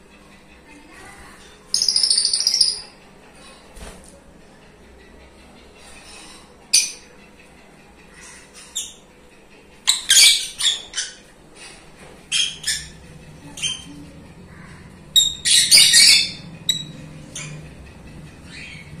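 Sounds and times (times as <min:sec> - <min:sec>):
baby birds high-pitched calls: 0:01.7 - 0:03.0, 0:09.9 - 0:19.0.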